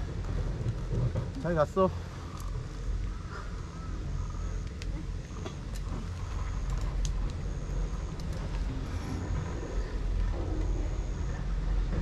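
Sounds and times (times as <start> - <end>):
bike clicks and rattles: 0.0 - 3.2, 4.6 - 10.8
wind and tyres rumbling: 0.0 - 12.0.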